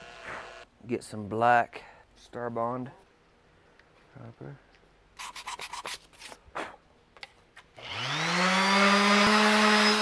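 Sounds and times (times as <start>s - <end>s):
power tool motor whining: 0.0s - 0.6s, 7.8s - 10.0s.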